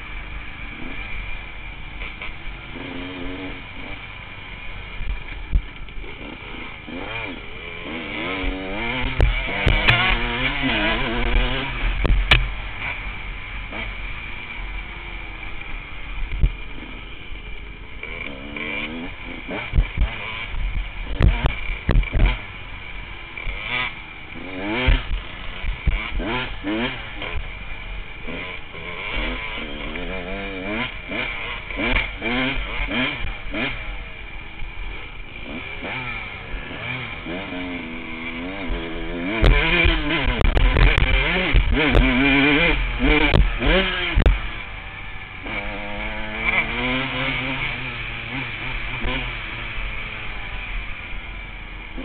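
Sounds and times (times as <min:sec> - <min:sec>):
dirt bike engine revving: 0:00.0 - 0:52.0
steady rush of noise: 0:00.0 - 0:52.0.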